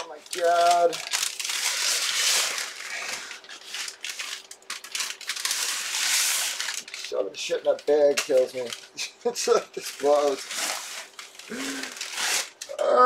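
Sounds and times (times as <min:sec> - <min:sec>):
plastic bag rustling and crinkling: 0:00.0 - 0:12.6.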